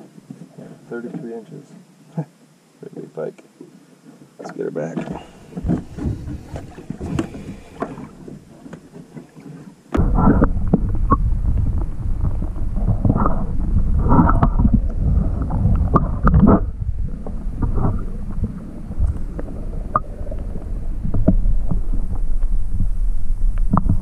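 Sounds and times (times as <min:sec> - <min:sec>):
muffled underwater rumbling and sloshing: 0:03.6 - 0:24.0
water splashing beside boat: 0:04.3 - 0:22.9.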